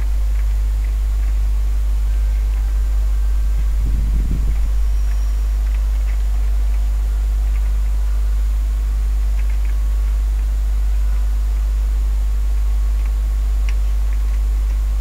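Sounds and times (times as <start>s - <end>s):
low electrical hum: 0.0s - 15.0s
faint ticks: 9.3s - 10.5s.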